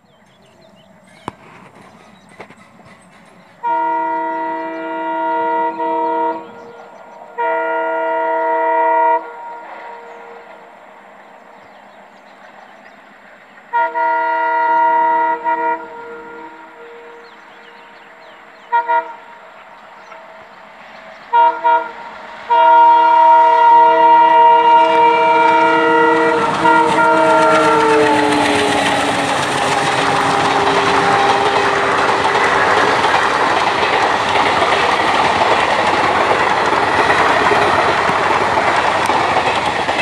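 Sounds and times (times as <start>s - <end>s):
train rumble: 0.0s - 40.0s
locomotive horn blasts: 3.6s - 10.6s, 13.7s - 18.0s, 18.6s - 19.4s, 21.3s - 32.7s.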